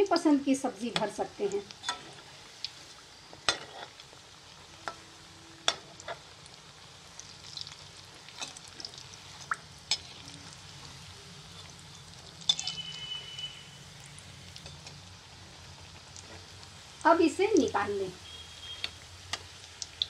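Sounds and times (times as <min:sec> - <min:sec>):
cutlets sizzling in oil: 0:00.0 - 0:20.0
spoon scraping: 0:11.5 - 0:13.4.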